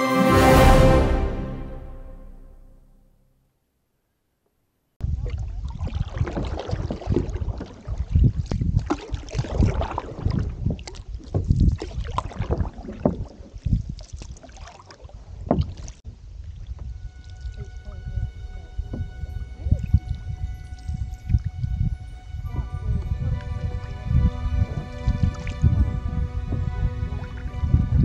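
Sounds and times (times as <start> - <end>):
wind buffeting microphone: 5.0 - 14.1, 15.4 - 28.0
water splashing against hull: 5.0 - 28.0.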